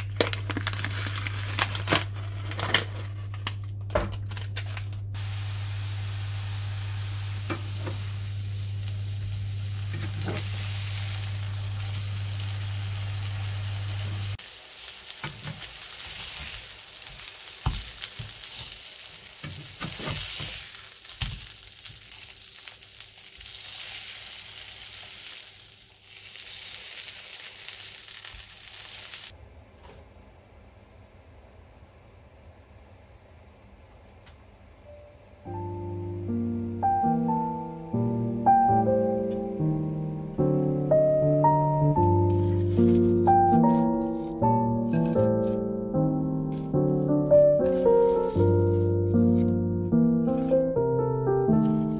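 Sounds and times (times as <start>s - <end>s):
steady low hum: 2.9s - 14.4s
patties sizzling in a frying pan: 5.2s - 29.3s.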